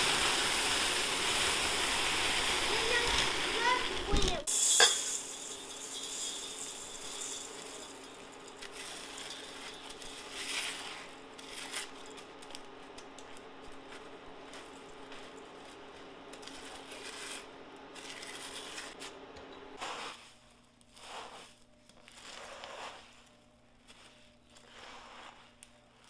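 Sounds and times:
kitchen utensils clinking: 1.0s - 10.8s.

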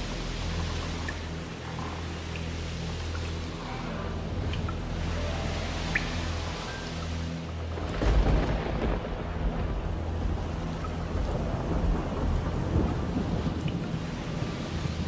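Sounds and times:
rain falling: 0.0s - 15.0s
thunder rumble: 7.6s - 15.0s.

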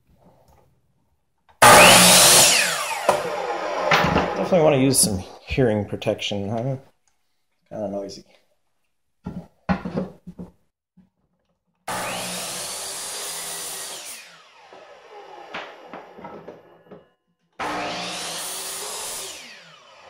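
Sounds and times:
miter saw cutting wood: 1.6s - 5.4s, 11.9s - 16.8s, 17.6s - 20.0s.

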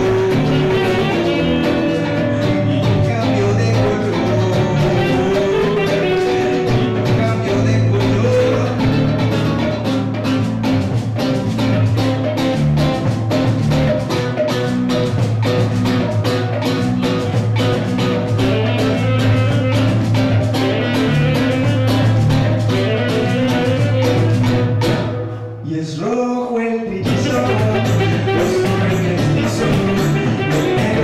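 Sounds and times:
alto saxophone: 0.0s - 10.6s, 16.3s - 25.6s, 27.1s - 31.0s
drum kit: 0.0s - 25.5s, 27.0s - 31.0s
electric bass: 0.0s - 25.6s, 27.0s - 31.0s
acoustic guitar: 0.0s - 31.0s.

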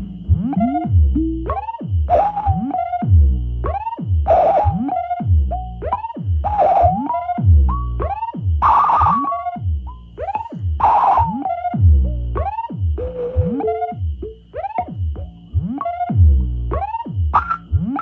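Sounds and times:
deep bass: 0.0s - 8.7s, 9.6s - 18.0s
synthesizer gliding tones: 0.0s - 18.0s
steady high whistle: 5.9s - 11.8s, 16.8s - 18.0s.

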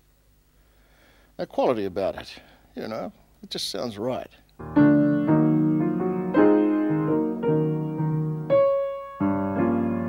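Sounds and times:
solo piano slow chords: 4.6s - 10.0s.

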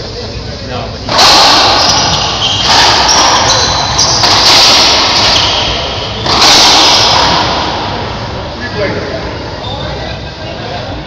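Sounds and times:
ball slamming into court walls: 1.1s - 8.0s
ball cracking off racquets: 1.1s - 8.1s.

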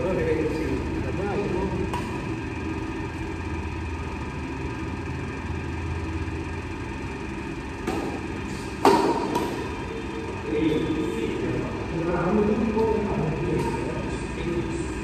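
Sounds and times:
steady low hum: 0.0s - 15.0s
racket hitting shuttlecock: 1.8s - 2.5s, 7.5s - 10.2s, 12.8s - 14.0s.

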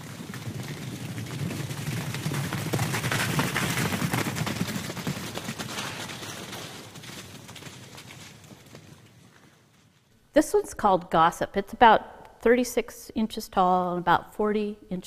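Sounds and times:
rush of rapid clattering: 0.3s - 7.7s.

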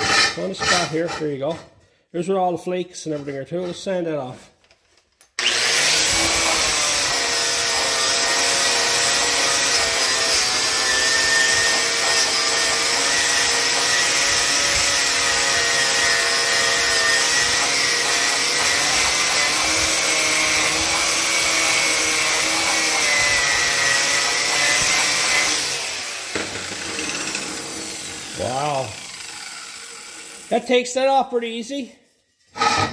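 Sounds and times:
grinder motor whine: 5.4s - 10.0s.

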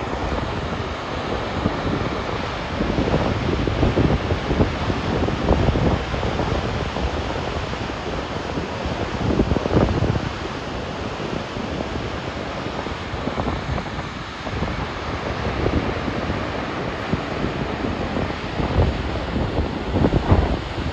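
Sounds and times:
waterfall roaring: 0.0s - 20.9s
wind buffeting microphone: 0.0s - 20.9s.

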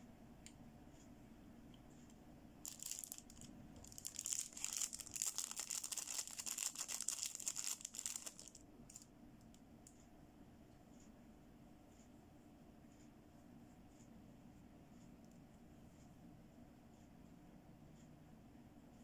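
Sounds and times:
plastic wrapper crinkling: 2.7s - 9.1s.

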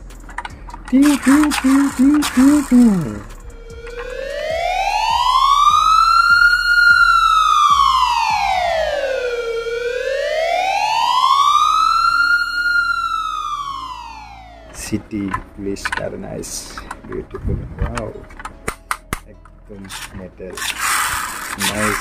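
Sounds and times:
police siren wailing: 0.9s - 15.0s.

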